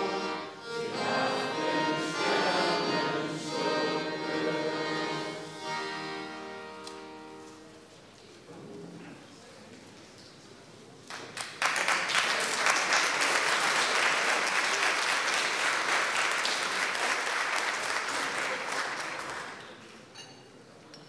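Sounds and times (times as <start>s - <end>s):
audience applauding: 11.1s - 19.9s.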